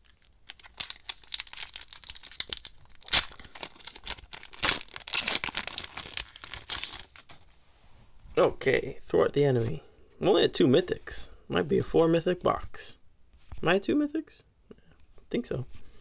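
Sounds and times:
foil wrapper crinkling and tearing: 0:00.0 - 0:07.4.

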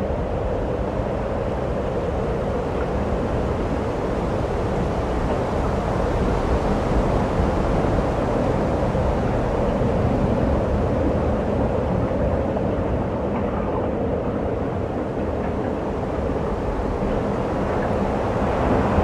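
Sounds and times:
wind noise on microphone: 0:00.0 - 0:19.0.

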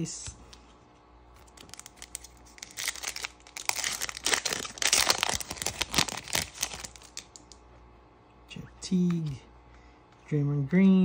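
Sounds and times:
foil wrapper tearing and crinkling: 0:01.4 - 0:07.5.

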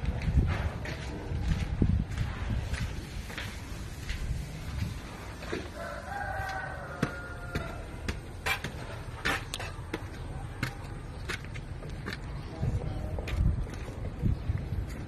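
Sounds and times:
rooster crowing: 0:05.6 - 0:08.0.

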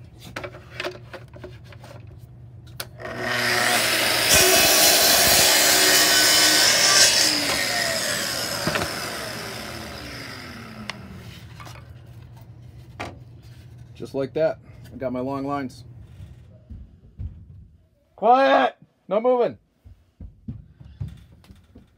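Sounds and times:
saw motor winding down: 0:03.0 - 0:11.5
circular saw cutting wood: 0:03.0 - 0:11.7.

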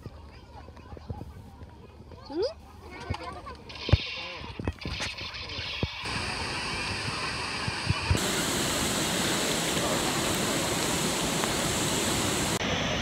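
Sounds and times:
waterfall rushing: 0:06.1 - 0:13.0.

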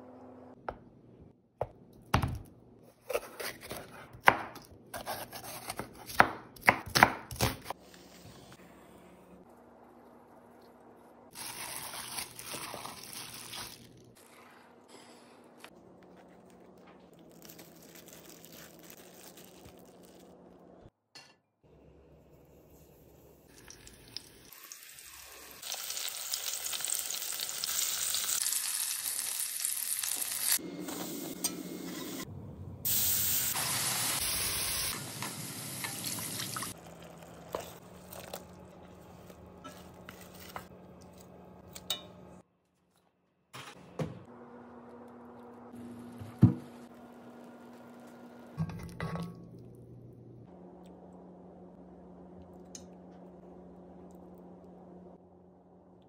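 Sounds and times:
chicken sizzling in oil: 0:23.5 - 0:30.6.

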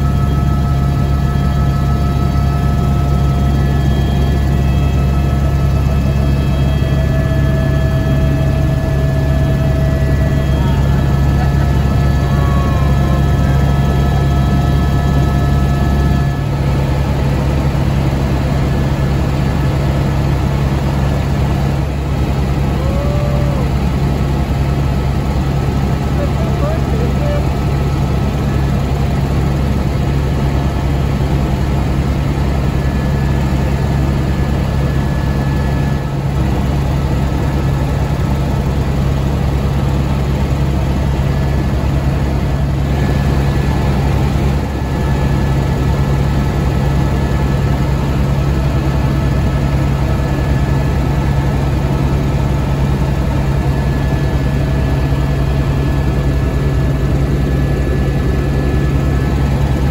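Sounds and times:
faint whining tones: 0:00.0 - 0:18.7
helicopter rotor and engine drone: 0:00.0 - 0:59.9.

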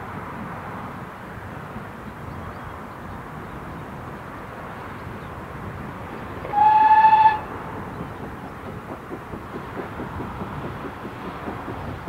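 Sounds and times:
steam whistle: 0:06.5 - 0:07.5.

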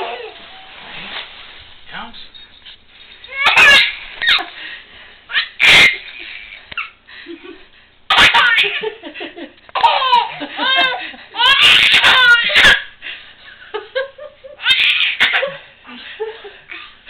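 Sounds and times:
baby laughing and squealing: 0:00.0 - 0:00.4, 0:03.3 - 0:04.5, 0:05.3 - 0:07.0, 0:08.1 - 0:08.8, 0:09.8 - 0:12.9, 0:14.6 - 0:15.5.

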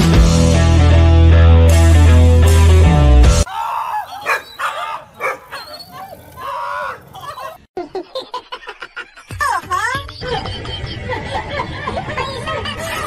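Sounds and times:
rock music: 0:00.0 - 0:03.5
dogs barking: 0:03.6 - 0:07.7.

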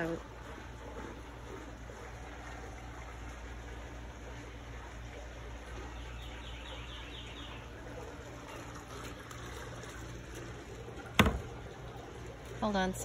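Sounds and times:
steady low hum: 0:00.0 - 0:13.0
bird chirping: 0:05.9 - 0:07.8.

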